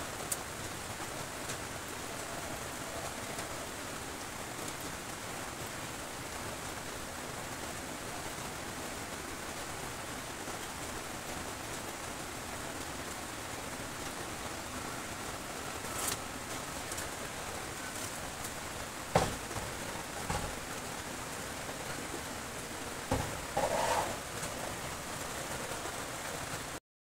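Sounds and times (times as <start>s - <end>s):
steady rain falling: 0.0s - 26.8s
sharp knocks: 19.1s - 20.6s, 23.1s - 24.1s.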